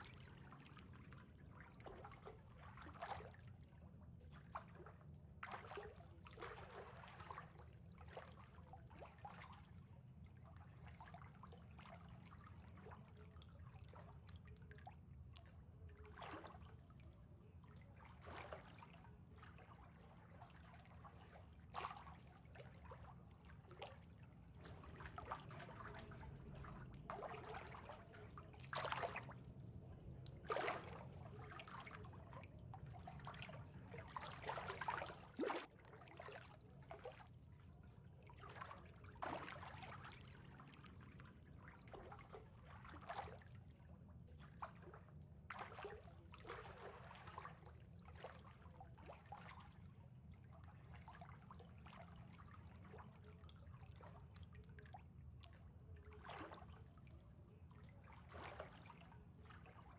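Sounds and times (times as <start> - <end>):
small water splashes: 0.0 - 59.9
water trickling and lapping: 0.0 - 59.9
low steady hum: 18.8 - 42.8.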